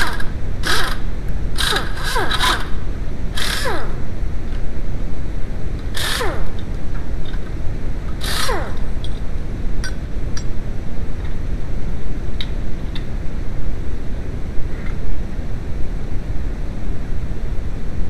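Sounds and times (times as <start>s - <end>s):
steady low rumble: 0.0s - 18.0s
power tool whining bursts: 1.6s - 2.8s, 3.4s - 4.0s, 5.9s - 6.6s, 8.2s - 8.9s.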